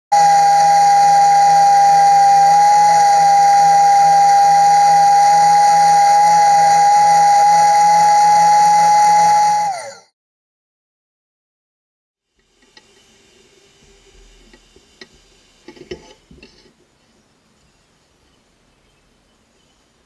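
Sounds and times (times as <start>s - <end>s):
spindle sander whining: 0.1s - 10.1s.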